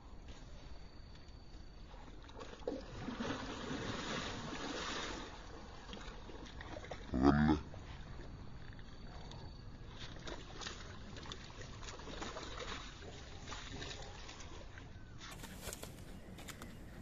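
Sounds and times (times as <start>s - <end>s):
outdoor noise: 0.0s - 17.0s
river water splashing: 1.8s - 17.0s
scuffing on muddy bank: 15.2s - 17.0s.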